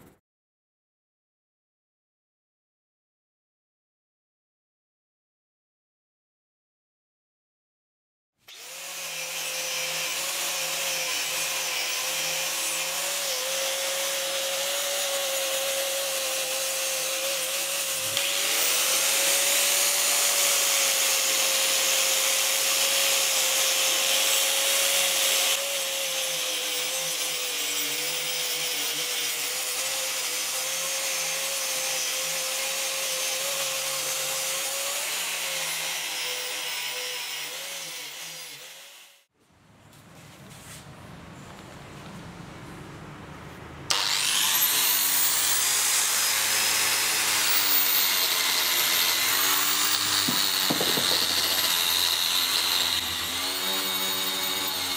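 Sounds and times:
angle grinder on metal: 0:08.5 - 0:39.3, 0:43.9 - 0:54.9.

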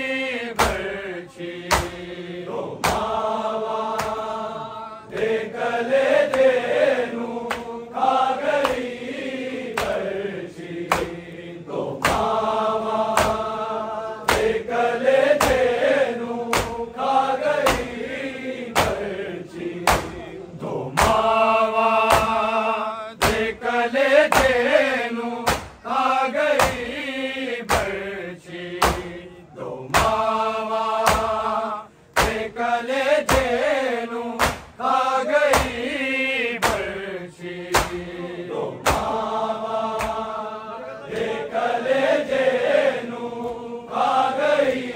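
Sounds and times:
men chanting a lament: 0:00.0 - 0:44.9
chest-beating slaps: 0:00.5 - 0:01.0, 0:01.6 - 0:02.2, 0:02.8 - 0:03.2, 0:03.9 - 0:04.3, 0:05.1 - 0:05.4, 0:06.2 - 0:06.7, 0:07.4 - 0:07.8, 0:08.5 - 0:10.1, 0:10.7 - 0:13.6, 0:14.2 - 0:17.0, 0:17.6 - 0:19.2, 0:19.8 - 0:20.3, 0:20.9 - 0:22.5, 0:23.2 - 0:23.6, 0:24.2 - 0:24.8, 0:25.4 - 0:25.9, 0:26.5 - 0:27.0, 0:27.6 - 0:28.0, 0:28.7 - 0:29.2, 0:29.9 - 0:30.3, 0:31.0 - 0:31.5, 0:32.1 - 0:32.6, 0:33.2 - 0:33.7, 0:34.4 - 0:34.8, 0:35.4 - 0:35.9, 0:36.6 - 0:37.0, 0:37.6 - 0:38.2, 0:38.8 - 0:39.3, 0:39.9 - 0:40.4.

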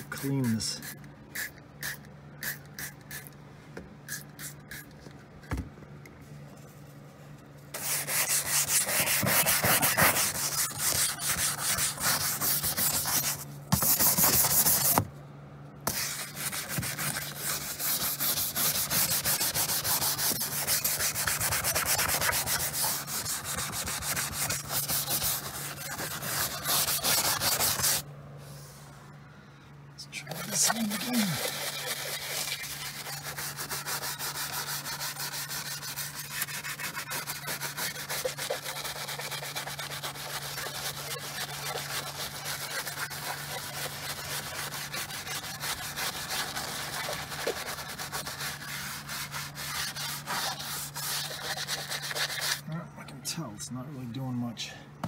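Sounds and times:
spray bottle squirts: 0:04.1 - 0:04.9, 0:30.7 - 0:34.1
hard brush scrubbing: 0:07.7 - 0:15.0, 0:15.9 - 0:28.0, 0:30.2 - 0:52.6.

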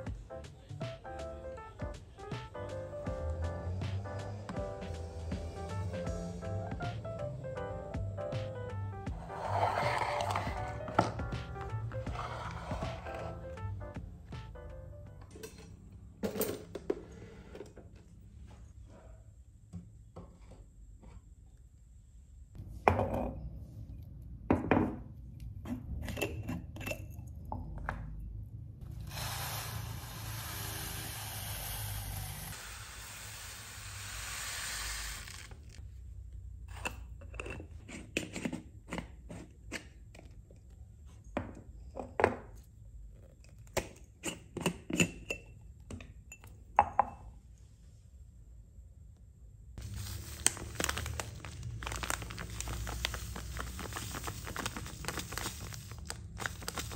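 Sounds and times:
dry grains pouring into jar: 0:29.1 - 0:35.7, 0:49.8 - 0:56.9.

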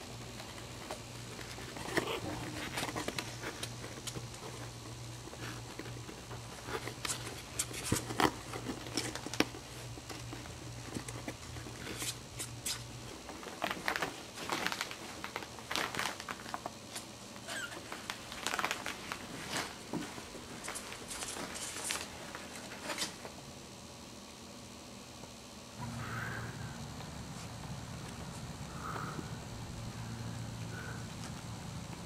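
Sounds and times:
low steady hum: 0:00.0 - 0:32.0
puppies scrambling in a box: 0:00.4 - 0:12.6.

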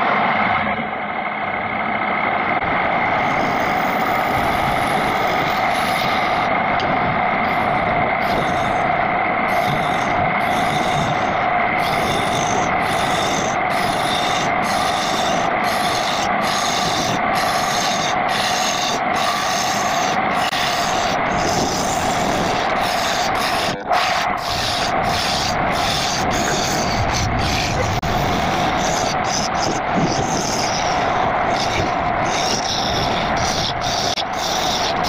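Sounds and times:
lathe motor humming: 0:00.0 - 0:35.0
turning tool scraping wood: 0:09.5 - 0:35.0.

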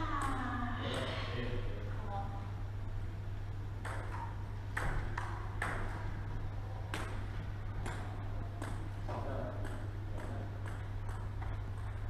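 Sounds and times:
steady low hum: 0:00.0 - 0:12.0
table tennis ball clicks: 0:09.5 - 0:12.0.

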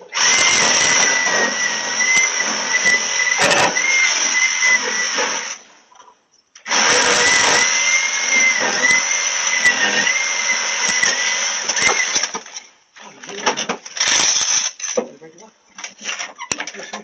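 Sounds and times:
power saw cutting pipe: 0:00.0 - 0:05.6, 0:06.7 - 0:12.4.

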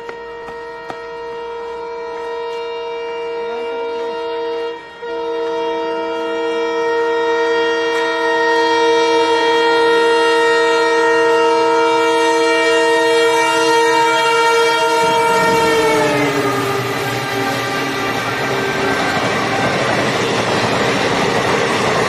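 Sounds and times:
locomotive horn blast: 0:00.0 - 0:21.0
train rushing past: 0:07.8 - 0:22.0.

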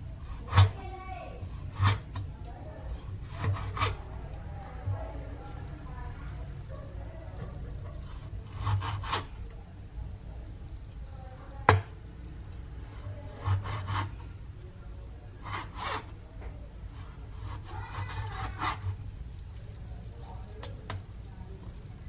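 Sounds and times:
knife slicing meat: 0:00.2 - 0:00.8, 0:01.4 - 0:04.1, 0:08.1 - 0:09.3, 0:12.9 - 0:14.2, 0:17.0 - 0:19.1.

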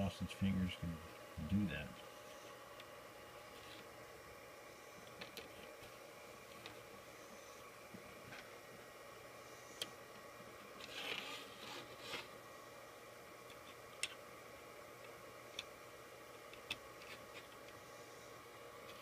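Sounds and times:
steady low hum: 0:00.0 - 0:19.0
plastic scraping rustle: 0:10.8 - 0:12.4.

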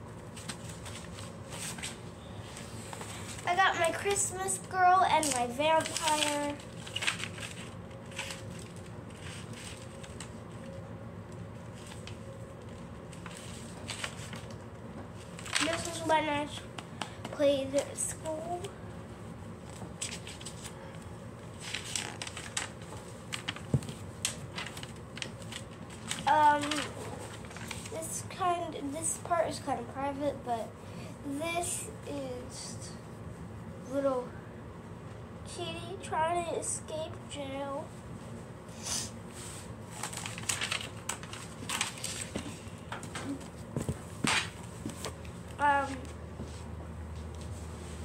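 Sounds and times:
paper pages rustling: 0:00.2 - 0:03.9, 0:05.2 - 0:10.8, 0:11.6 - 0:17.1, 0:19.6 - 0:28.0, 0:39.4 - 0:46.6.

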